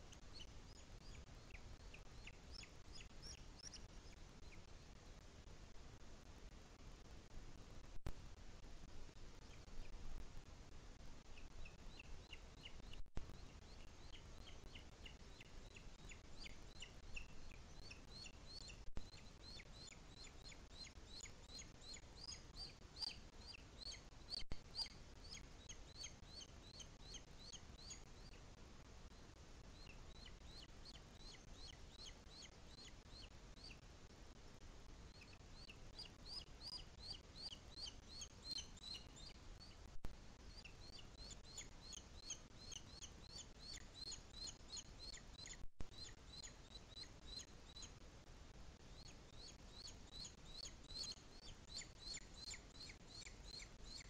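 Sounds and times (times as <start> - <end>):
eagle chick begging calls: 35.2 - 39.8.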